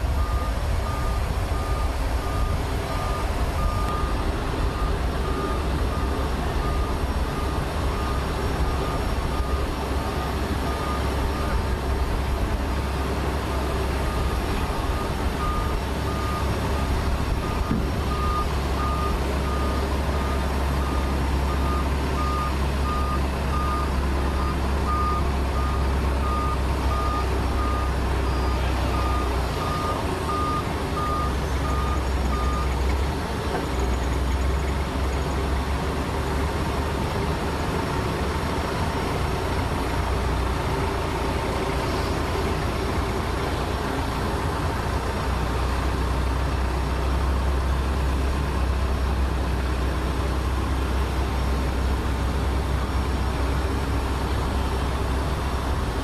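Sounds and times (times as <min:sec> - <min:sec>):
reversing alarm beeping: 0:00.0 - 0:11.7, 0:14.0 - 0:32.8
tractor engine drone: 0:00.0 - 0:56.0.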